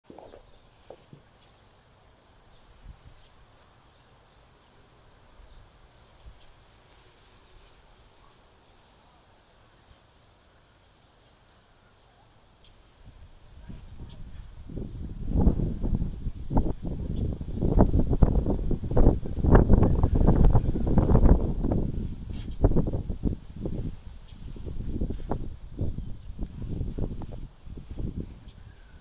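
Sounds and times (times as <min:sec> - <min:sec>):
insects trilling in grass: 0:00.0 - 0:29.0
dog rustling through grass: 0:05.6 - 0:10.3, 0:12.8 - 0:29.0.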